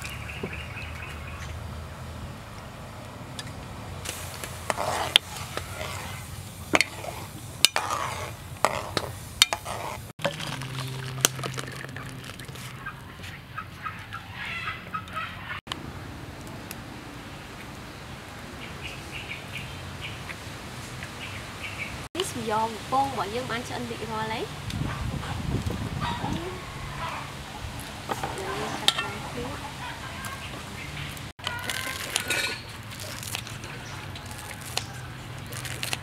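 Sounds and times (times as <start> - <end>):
sauce pouring into bowl: 10.3 - 12.6
ladle clinking against pot: 28.2 - 29.2.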